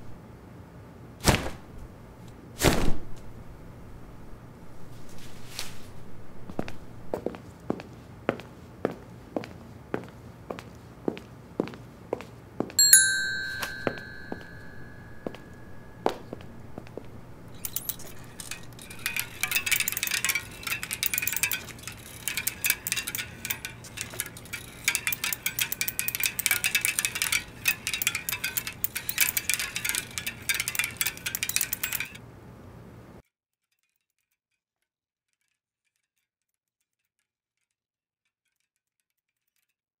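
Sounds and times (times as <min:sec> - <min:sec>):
bell-like chime: 0:12.8 - 0:16.3.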